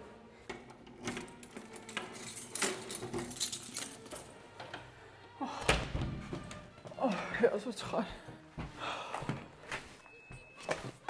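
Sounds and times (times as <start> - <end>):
keys jangling in a lock: 0.8 - 4.5.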